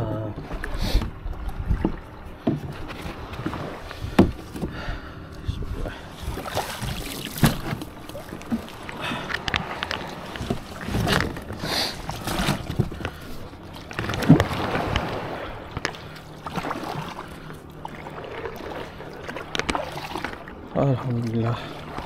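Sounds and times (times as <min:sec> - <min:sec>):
kayak knocks and bumps: 0:00.3 - 0:05.0, 0:06.2 - 0:17.0
water wash: 0:06.1 - 0:22.0.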